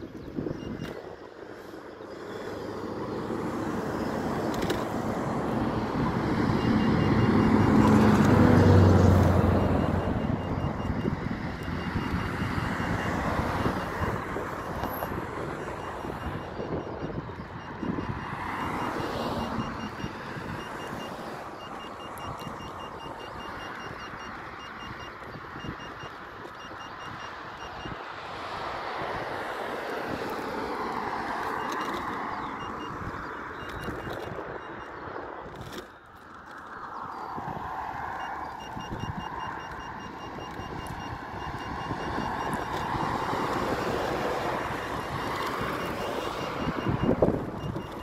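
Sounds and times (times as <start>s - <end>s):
road traffic passing: 0.0s - 48.0s
wind rumbling on microphone: 0.0s - 48.0s.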